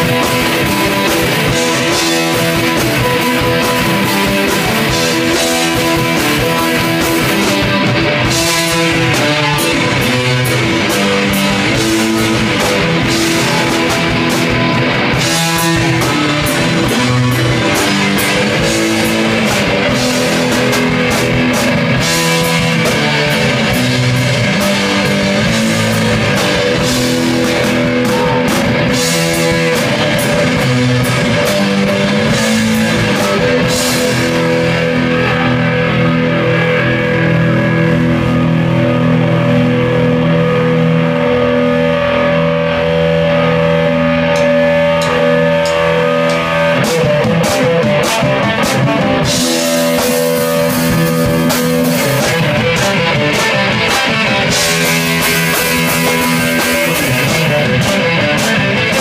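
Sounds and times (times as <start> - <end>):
drum kit: 0.0 - 59.0
electric guitars: 0.0 - 59.0.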